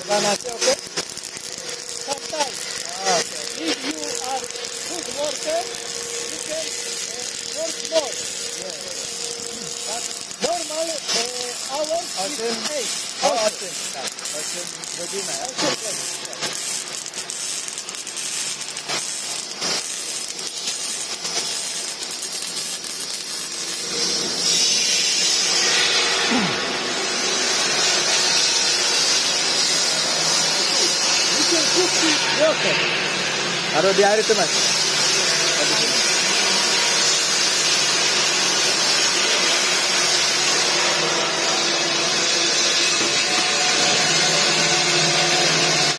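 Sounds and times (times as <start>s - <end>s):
steady gas hiss: 0.0s - 32.9s
welding arc crackling: 0.0s - 45.9s.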